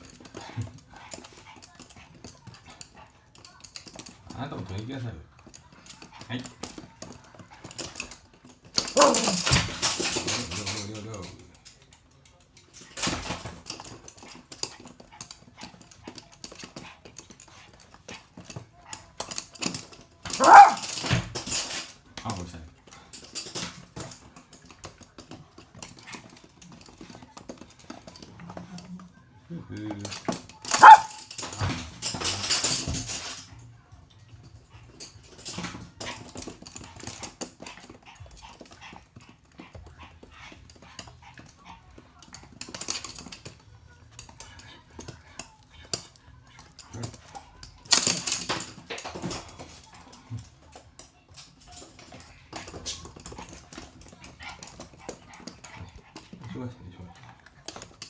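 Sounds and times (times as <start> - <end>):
dog claws clicking on wooden floor: 0.0 - 29.1, 29.7 - 58.0
small dog barking: 20.3 - 20.9, 30.7 - 31.2.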